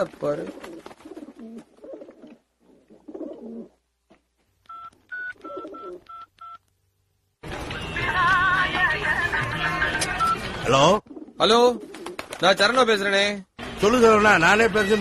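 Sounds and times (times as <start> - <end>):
phone keypad beeps: 4.7 - 6.6.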